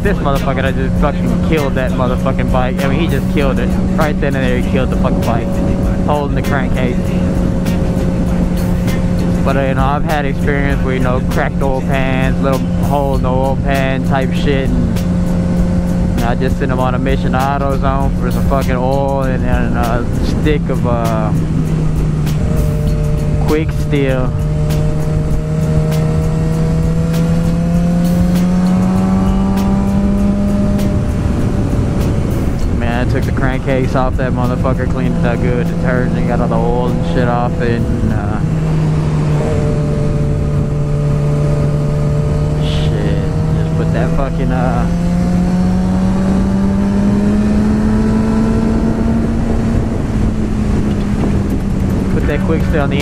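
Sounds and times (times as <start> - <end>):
motorcycle engine running: 0.0 - 53.0
wind rush over microphone: 0.0 - 53.0.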